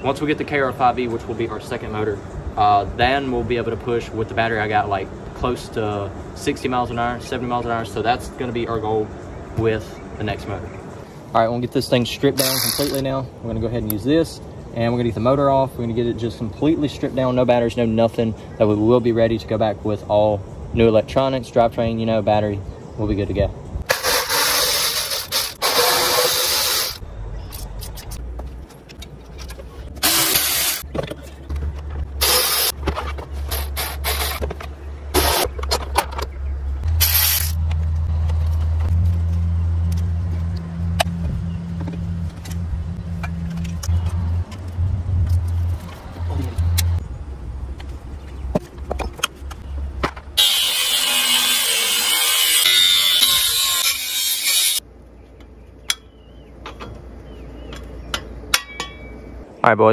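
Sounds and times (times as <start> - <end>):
hand tools clicking and ratcheting: 12.4 - 13.1, 23.9 - 30.8
harsh scraping: 23.9 - 27.0
low hum: 27.0 - 59.6.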